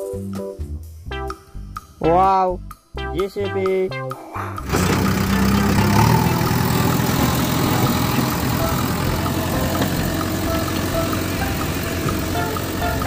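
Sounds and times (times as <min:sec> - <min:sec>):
engine running steadily: 0:04.6 - 0:13.0
toy backhoe driving over ground: 0:04.6 - 0:13.0.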